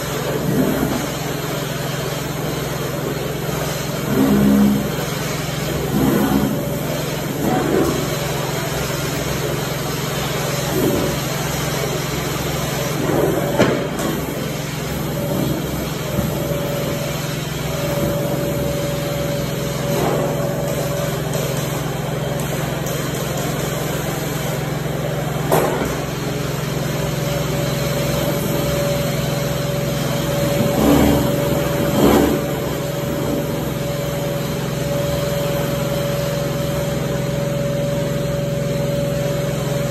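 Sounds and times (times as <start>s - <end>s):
suction and spray drone: 0.0s - 39.9s.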